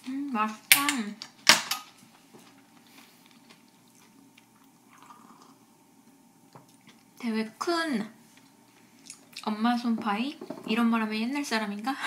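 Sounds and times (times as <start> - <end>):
faint chewing of crisp pastry: 2.4 - 7.2, 8.2 - 9.5.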